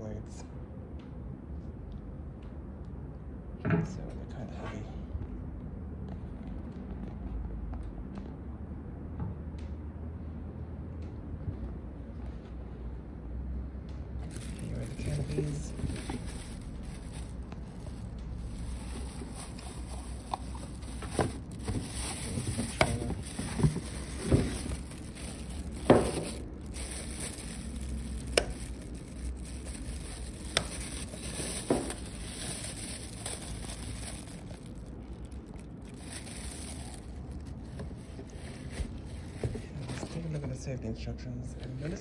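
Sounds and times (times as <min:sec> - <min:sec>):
plastic wrapping crinkling: 0:14.2 - 0:40.0.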